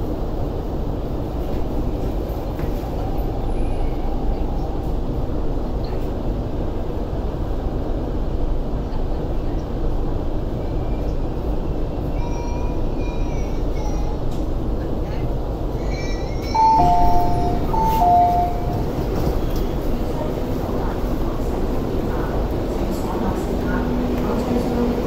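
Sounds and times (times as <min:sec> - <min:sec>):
train running noise: 0:00.0 - 0:25.0
faint high tones: 0:16.6 - 0:19.0.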